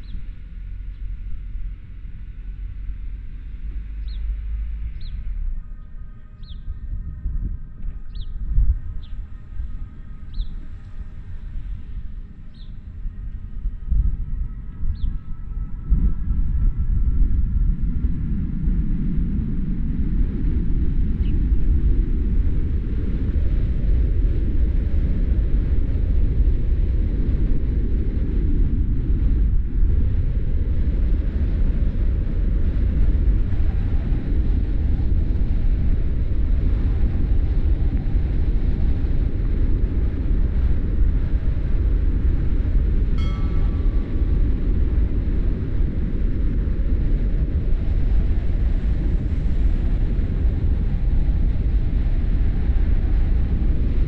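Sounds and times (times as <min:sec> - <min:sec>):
tyre and wind noise: 0:00.0 - 0:54.0
brief high-pitched tone: 0:43.2 - 0:44.6.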